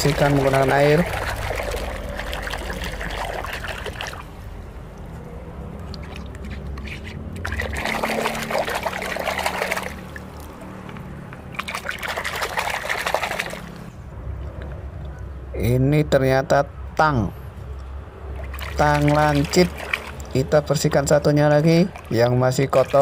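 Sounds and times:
hand splashing water in bucket: 0:00.0 - 0:04.3, 0:05.9 - 0:10.6, 0:11.5 - 0:13.8, 0:18.4 - 0:20.5, 0:21.8 - 0:23.0.

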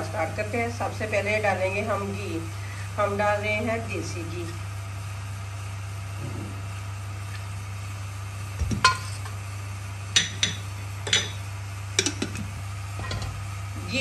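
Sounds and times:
steady low hum: 0:00.0 - 0:14.0
ladle clinking against metal pot: 0:10.2 - 0:11.4.

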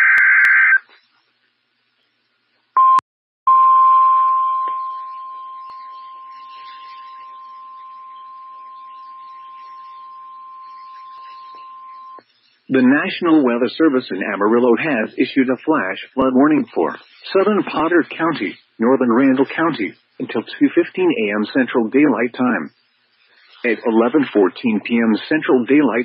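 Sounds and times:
faint static hiss: 0:00.1 - 0:02.8, 0:05.0 - 0:26.0
steady high alarm tone: 0:03.5 - 0:12.6.

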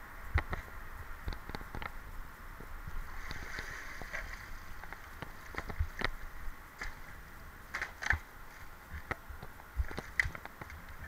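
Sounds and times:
water sloshing and splashing: 0:03.1 - 0:06.0.

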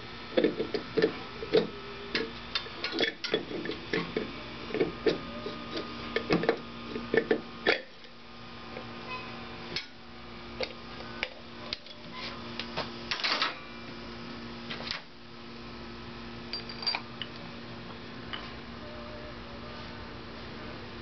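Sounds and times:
electrical hum: 0:00.0 - 0:21.0
metallic clicks and clinks: 0:16.5 - 0:17.4.

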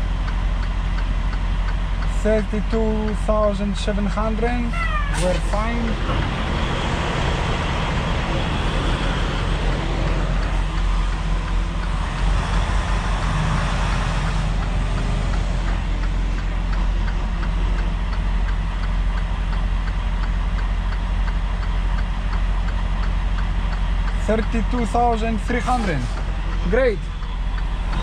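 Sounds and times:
diesel engine idling: 0:00.0 - 0:28.0
light ticks: 0:00.2 - 0:04.5, 0:10.4 - 0:12.6, 0:13.9 - 0:25.1.

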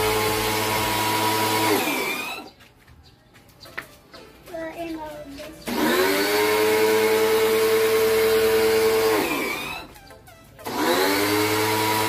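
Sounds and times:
pressure washer motor whine: 0:00.0 - 0:02.5, 0:05.7 - 0:09.9, 0:10.6 - 0:12.0.

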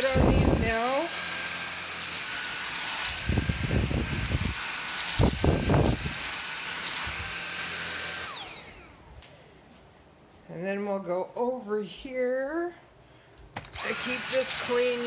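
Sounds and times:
vacuum motor whine: 0:00.0 - 0:09.4, 0:13.6 - 0:15.0.

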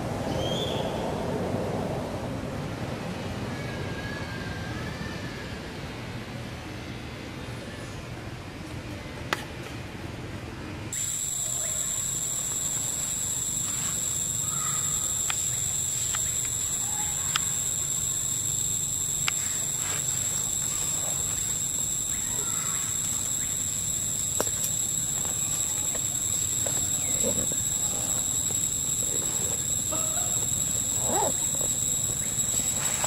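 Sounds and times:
high-pitched insect drone: 0:11.0 - 0:33.0
sharp clicks: 0:11.0 - 0:33.0.

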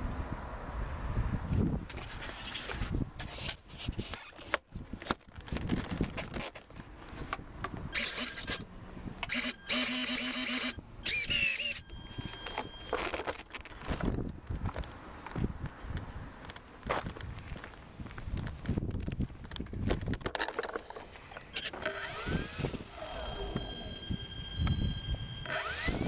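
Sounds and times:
high squeaks and squeals: 0:09.3 - 0:13.5, 0:20.8 - 0:26.0.

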